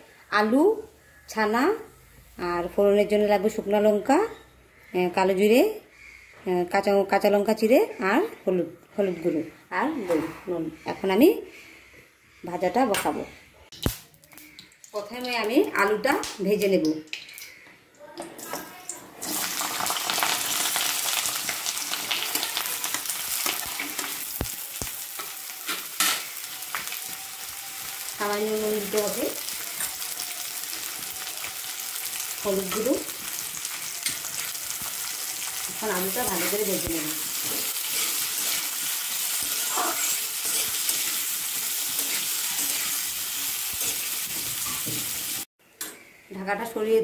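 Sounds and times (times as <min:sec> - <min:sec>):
potatoes sizzling in hot oil: 0:13.8 - 0:17.5, 0:19.2 - 0:45.5
metal spatula scraping pan: 0:25.2 - 0:26.4, 0:35.5 - 0:45.2.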